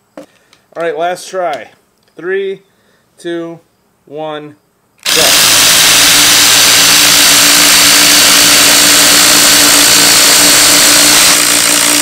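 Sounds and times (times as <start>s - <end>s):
impact drivers hammering screws: 5.0s - 12.0s.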